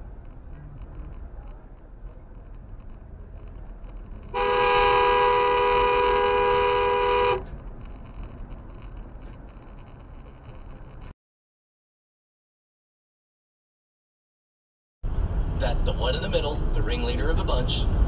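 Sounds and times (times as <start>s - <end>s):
road rumble from moving car: 0.0s - 11.2s, 15.0s - 18.0s
two-note car horn honk: 4.3s - 7.5s.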